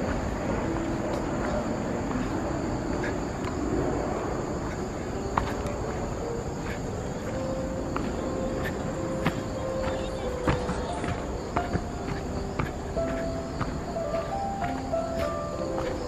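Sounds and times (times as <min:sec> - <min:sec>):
insects chirring: 0:00.0 - 0:16.0
footstep clicks on steps: 0:04.6 - 0:16.0.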